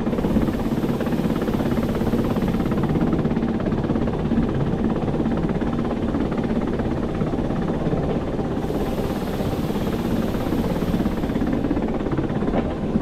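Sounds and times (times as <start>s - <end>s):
electric train rumble: 0.0s - 3.9s, 8.3s - 13.0s.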